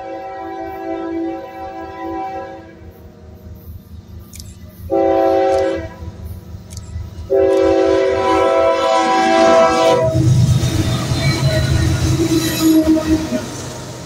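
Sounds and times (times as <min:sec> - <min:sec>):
locomotive air horn blast: 0:00.0 - 0:02.8, 0:04.9 - 0:06.0, 0:07.3 - 0:10.3.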